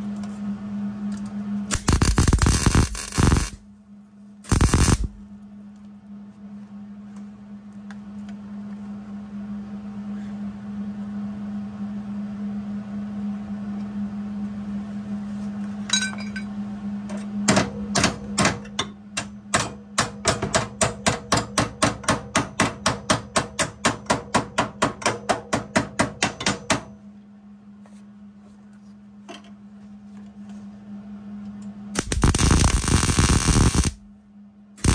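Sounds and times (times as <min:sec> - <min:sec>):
low hum: 0:00.0 - 0:17.4, 0:27.0 - 0:34.9
rapid hammer strikes on steel: 0:17.5 - 0:27.0.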